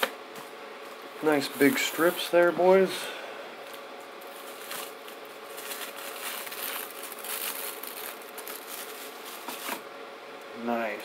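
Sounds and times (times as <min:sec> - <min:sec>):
cellophane wrappers crinkling: 0:04.3 - 0:09.8.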